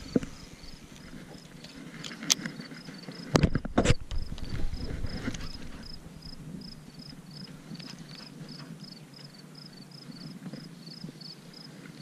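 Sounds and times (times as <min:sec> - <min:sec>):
cricket chirping: 0:00.0 - 0:12.0.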